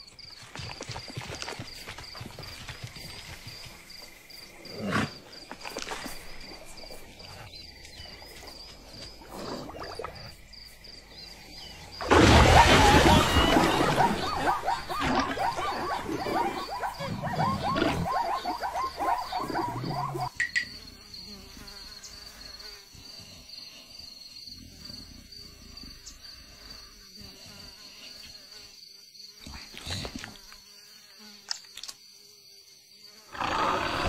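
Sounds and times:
high insect drone: 14.4 - 34.0.

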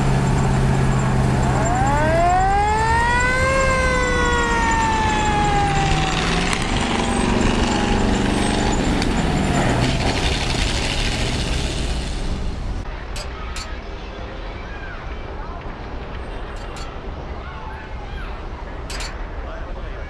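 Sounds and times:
fire engine siren: 0.0 - 11.4
truck engine running: 0.0 - 13.8, 15.3 - 17.3.

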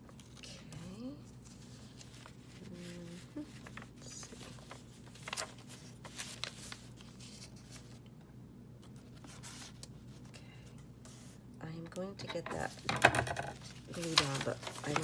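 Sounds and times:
paper rustling and scraping: 1.3 - 8.0, 8.8 - 10.3, 12.4 - 15.0.

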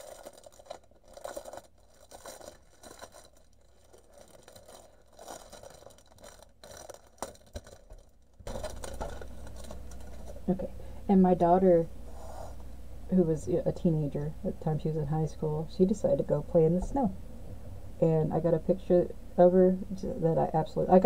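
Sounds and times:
plastic bag crinkling: 0.0 - 10.6
steady low hum: 0.0 - 21.0.

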